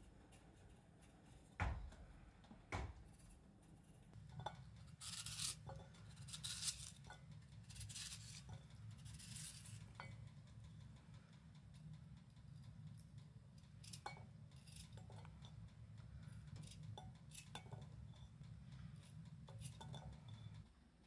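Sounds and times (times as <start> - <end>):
low steady hum: 0.0 - 21.0
knife cutting potato: 4.9 - 7.0.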